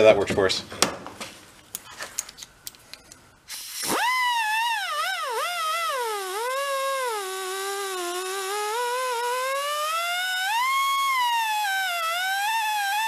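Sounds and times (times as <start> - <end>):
exhaust air hiss: 3.5 - 13.0
die grinder whining on metal: 3.8 - 13.0.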